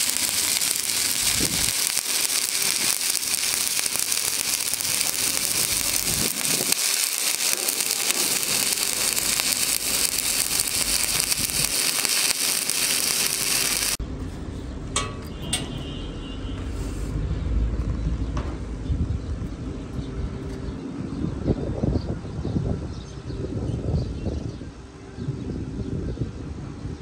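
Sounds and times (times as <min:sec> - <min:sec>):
welding arc crackling and hissing: 0:00.0 - 0:14.0.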